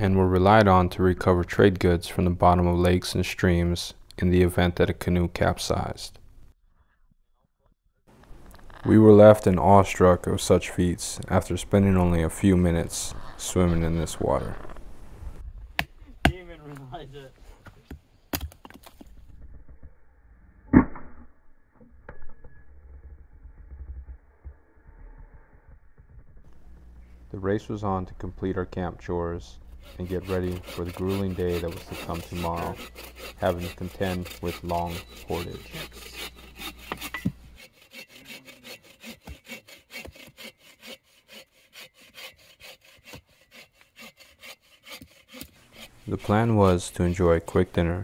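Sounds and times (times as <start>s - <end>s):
bow saw cutting log: 26.5s - 47.8s
hatchet striking wood: 36.2s - 37.7s, 39.0s - 41.0s.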